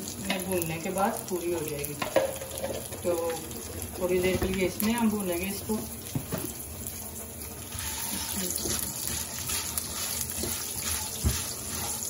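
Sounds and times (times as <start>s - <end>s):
vermicelli sizzling in oil: 0.0s - 12.0s
spatula stirring: 7.7s - 12.0s.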